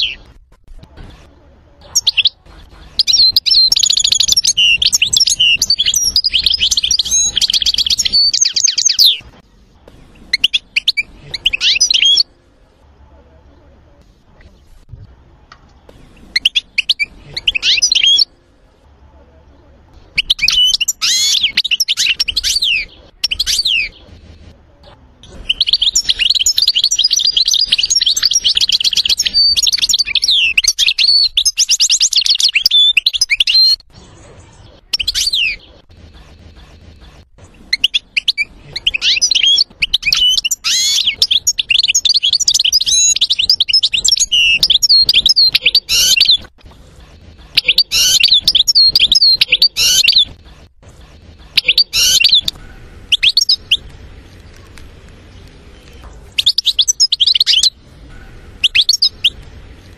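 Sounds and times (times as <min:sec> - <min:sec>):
goldfinch singing: 0:47.5 - 0:50.4, 0:51.6 - 0:53.8.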